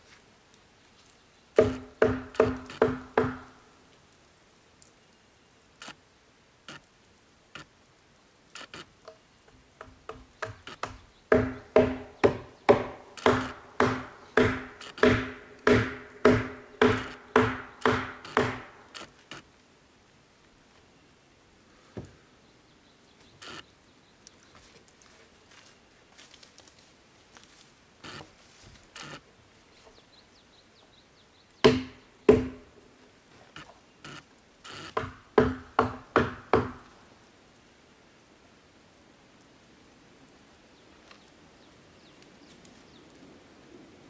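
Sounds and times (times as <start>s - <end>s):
hammer striking wood: 1.6s - 3.5s, 9.8s - 18.8s, 31.6s - 32.7s, 34.9s - 36.8s.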